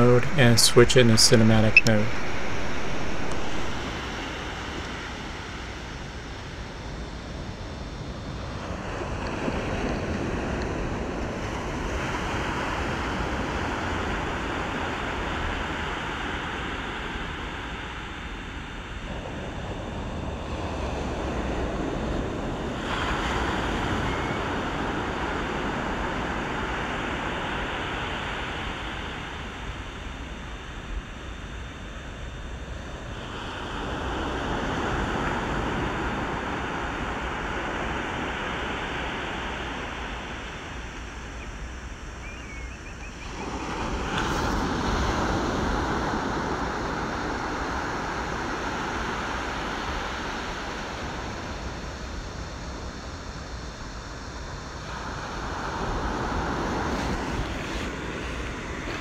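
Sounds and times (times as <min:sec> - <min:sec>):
ocean waves and surf: 0:00.0 - 0:06.6, 0:20.6 - 0:29.4, 0:33.3 - 0:41.0, 0:43.2 - 0:51.8, 0:54.8 - 0:59.0.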